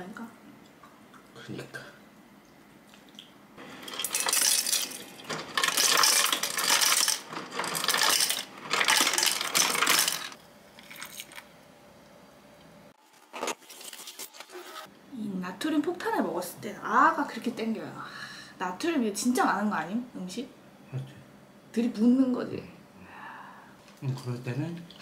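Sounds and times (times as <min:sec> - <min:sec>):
ice rattle: 0:03.6 - 0:11.5
ice cubes clattering into glass: 0:03.7 - 0:11.4.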